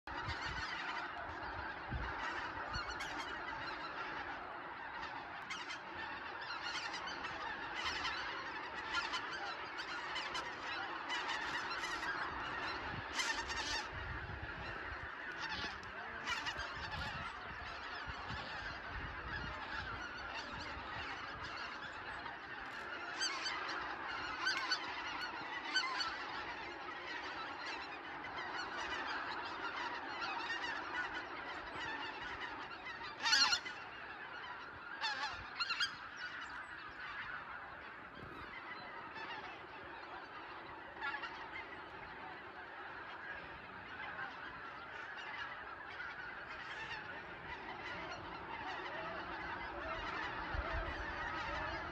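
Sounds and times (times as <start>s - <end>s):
geese honking in flight: 0.0s - 51.9s.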